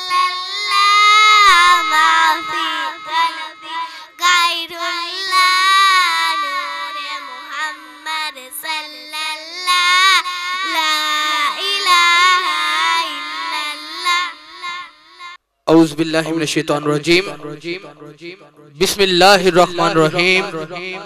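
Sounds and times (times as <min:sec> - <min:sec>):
person singing unaccompanied: 0:00.0 - 0:15.4.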